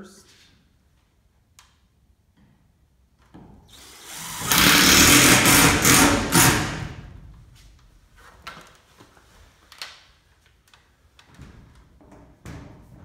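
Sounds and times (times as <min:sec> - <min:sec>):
power drill driving screw into steel: 0:03.7 - 0:07.0.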